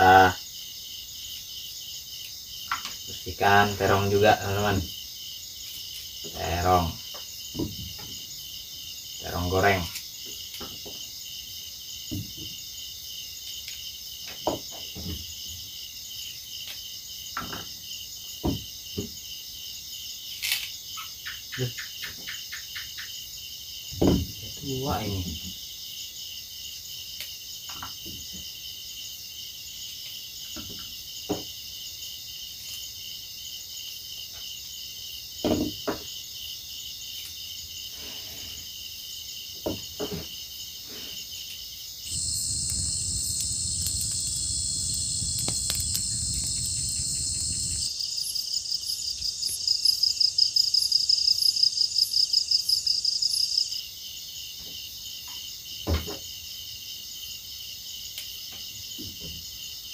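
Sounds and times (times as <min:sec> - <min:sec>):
night insects trilling: 0:00.0 - 0:59.9
fast-pulsing insect call: 0:42.1 - 0:53.6.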